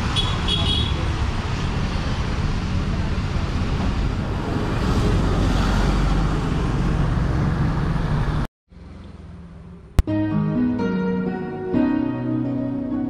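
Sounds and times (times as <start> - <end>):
road traffic noise: 0.0 - 10.0
music: 10.0 - 13.0.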